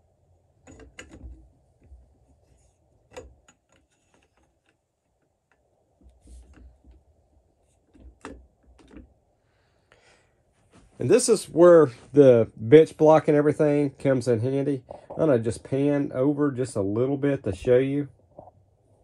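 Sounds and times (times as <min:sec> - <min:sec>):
light metal clicks and rattles: 0:00.6 - 0:02.0.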